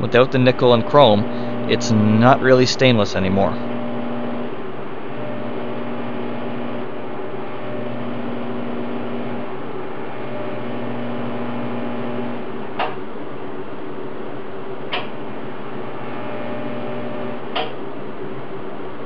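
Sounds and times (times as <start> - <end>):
high buzz: 0.0 - 13.0, 14.9 - 17.8
welder humming: 0.0 - 18.5.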